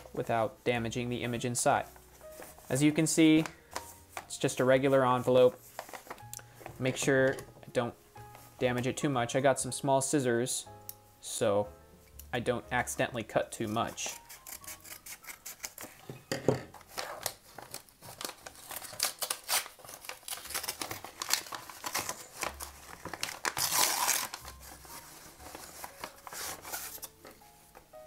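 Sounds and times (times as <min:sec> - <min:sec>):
paper crinkling: 0:01.8 - 0:07.3, 0:13.6 - 0:16.0, 0:16.7 - 0:28.0
paper tearing: 0:13.6 - 0:16.0, 0:16.9 - 0:27.2
scissors snipping paper: 0:13.6 - 0:16.0, 0:16.9 - 0:24.8.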